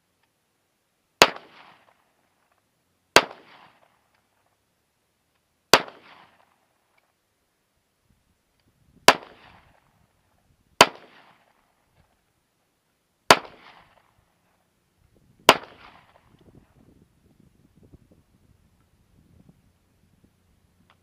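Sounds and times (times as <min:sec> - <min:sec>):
pistol shots with echo: 0:01.2 - 0:02.0, 0:03.2 - 0:03.8, 0:05.7 - 0:06.5, 0:09.1 - 0:09.8, 0:10.8 - 0:11.6, 0:13.3 - 0:14.0, 0:15.5 - 0:16.2.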